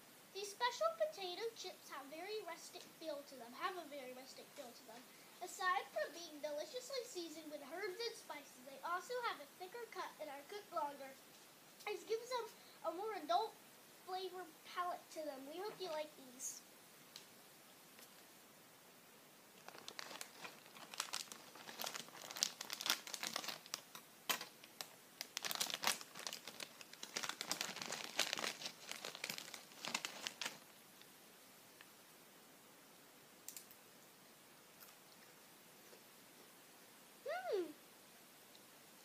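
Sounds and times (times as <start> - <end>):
plastic chip bag crinkling: 19.6 - 30.7.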